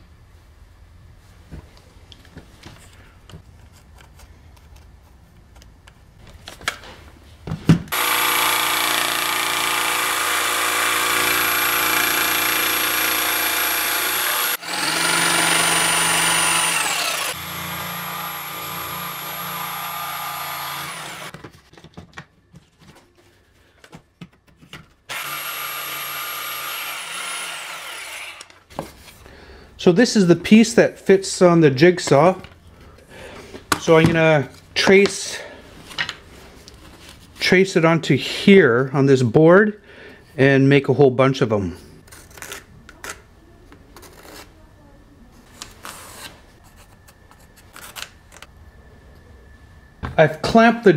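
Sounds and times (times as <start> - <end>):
jigsaw cutting wood: 7.9 - 21.4, 25.1 - 28.6.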